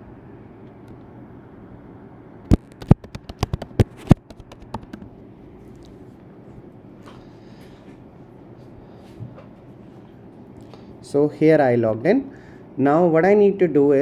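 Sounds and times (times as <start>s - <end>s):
keyboard typing: 2.5s - 5.1s.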